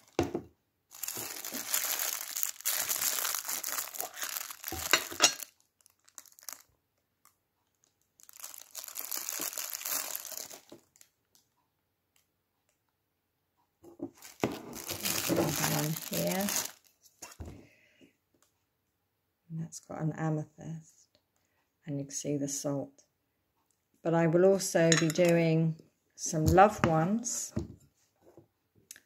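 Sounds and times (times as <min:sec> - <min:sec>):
plastic wrapping crinkling: 0:00.0 - 0:11.6, 0:14.0 - 0:17.5.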